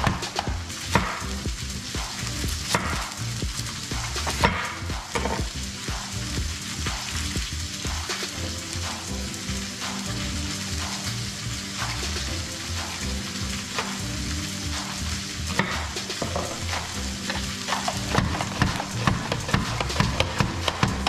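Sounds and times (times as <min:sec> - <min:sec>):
background music: 0:00.0 - 0:21.0
steady hiss: 0:00.0 - 0:21.0
knife tapping on cutting board: 0:18.1 - 0:21.0.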